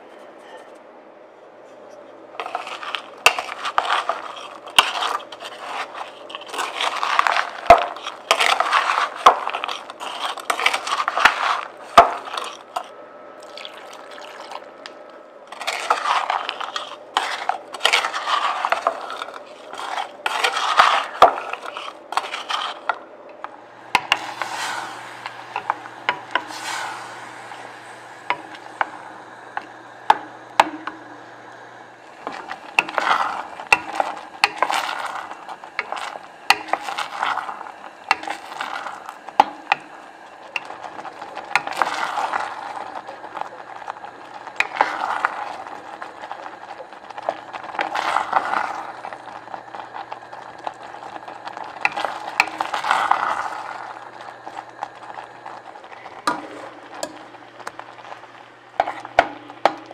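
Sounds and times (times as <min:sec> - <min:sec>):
low steady hum: 0:00.0 - 0:59.9
wooden spatula scraping saucepan: 0:01.7 - 0:12.9, 0:15.5 - 0:23.0, 0:23.7 - 0:31.2, 0:32.1 - 0:39.9, 0:58.8 - 0:59.9
frozen berries clicking on metal: 0:27.6 - 0:59.9.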